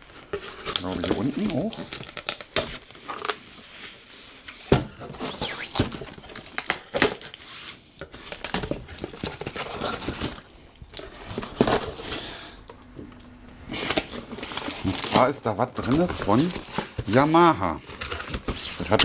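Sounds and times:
cardboard flaps scraping: 3.6s - 6.5s.

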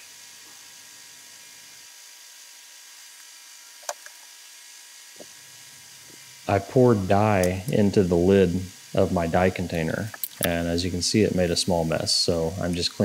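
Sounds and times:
background hiss: 0.0s - 13.0s
faint electrical hum: 0.0s - 13.0s.

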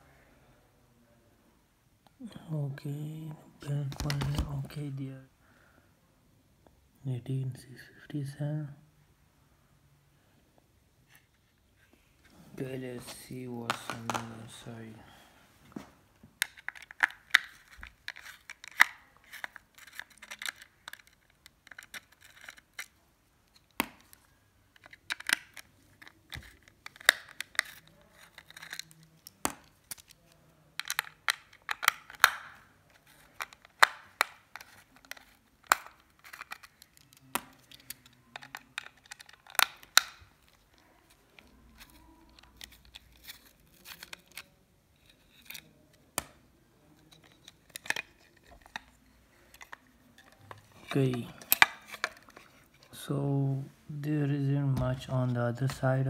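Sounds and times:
screwdriver clicking and scraping: 16.4s - 23.7s, 24.8s - 30.2s, 33.3s - 40.6s.

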